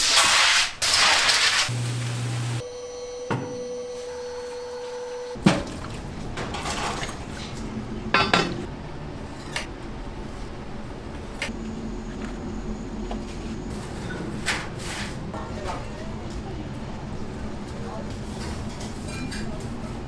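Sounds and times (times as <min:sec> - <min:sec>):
dishes and utensils clattering: 0:05.4 - 0:08.7, 0:18.4 - 0:19.7.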